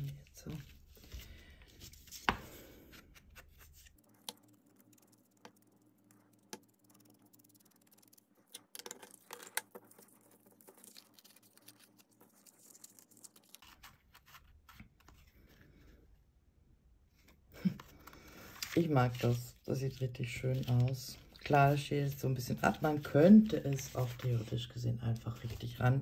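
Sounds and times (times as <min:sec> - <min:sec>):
cardstock being handled: 0:00.0 - 0:05.6, 0:07.6 - 0:15.3, 0:17.7 - 0:21.6, 0:22.7 - 0:25.8.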